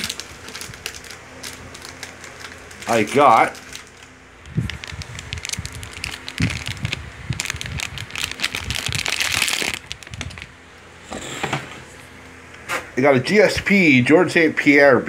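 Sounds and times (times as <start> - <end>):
cards rustling: 0.0 - 10.5.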